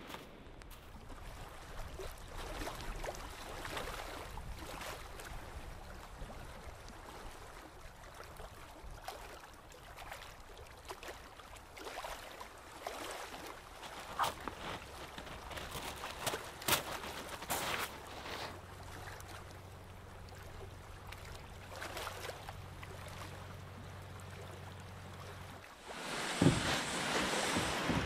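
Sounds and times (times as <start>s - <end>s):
small waves on shingle: 9.0s - 28.0s.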